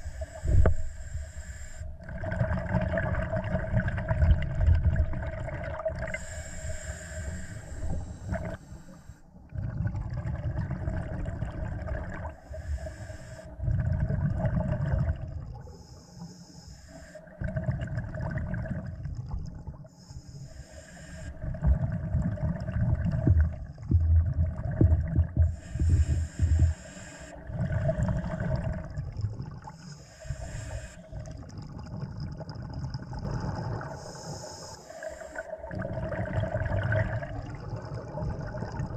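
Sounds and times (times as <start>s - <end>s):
regulator hissing inhale: 0.0s - 2.0s, 6.1s - 9.3s, 12.4s - 13.6s, 15.6s - 17.3s, 19.9s - 21.4s, 25.5s - 28.7s, 29.7s - 31.3s, 33.9s - 35.6s
steady hum: 0.0s - 2.0s, 6.1s - 9.4s, 23.0s - 29.0s
exhaled bubbles rushing: 2.0s - 6.2s, 9.5s - 12.4s, 13.5s - 15.6s, 17.3s - 19.8s, 21.4s - 26.8s, 27.4s - 29.9s, 31.1s - 34.4s, 35.0s - 38.9s.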